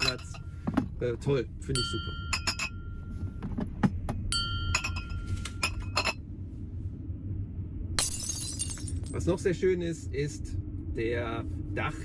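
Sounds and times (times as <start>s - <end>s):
glass bottles clinking: 0.0s - 0.5s, 1.8s - 2.9s, 4.4s - 6.2s, 8.0s - 9.2s.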